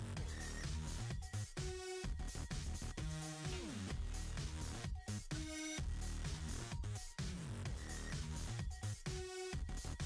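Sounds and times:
electronic music with synth: 0.0 - 10.0.

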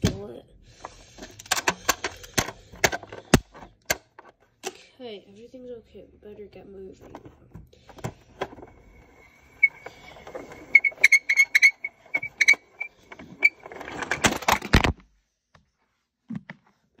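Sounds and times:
plastic toy parts clicking: 1.2 - 4.8.

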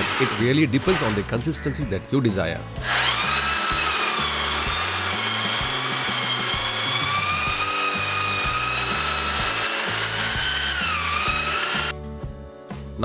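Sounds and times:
electric drill motor whine: 2.8 - 12.0.

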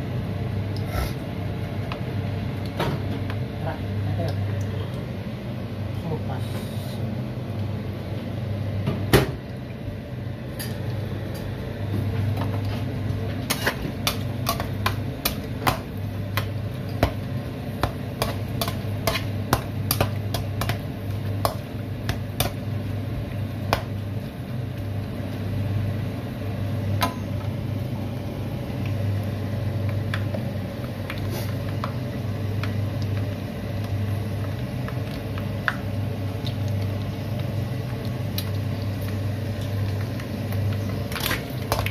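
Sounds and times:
pork skin popping in hot oil: 13.4 - 24.4, 29.8 - 41.9.

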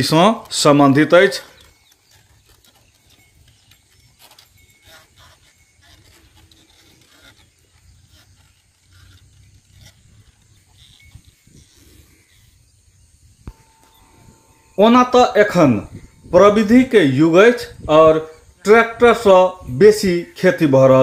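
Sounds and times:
low steady rumble: 13.4 - 19.8.

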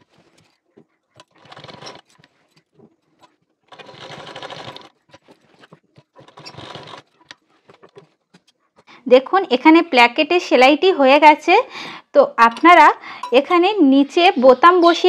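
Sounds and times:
sewing machine stitching: 0.0 - 8.2.

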